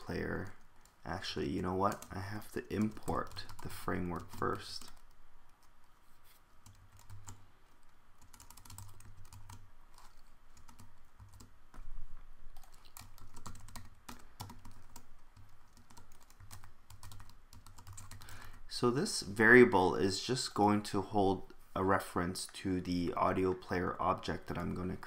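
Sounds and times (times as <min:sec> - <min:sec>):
computer keyboard typing: 0:00.0 - 0:06.0, 0:06.6 - 0:11.8, 0:12.6 - 0:18.6.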